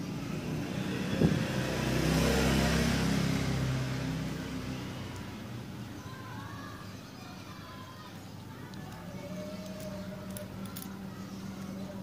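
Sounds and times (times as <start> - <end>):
motor vehicle passing by: 0.0 - 6.0.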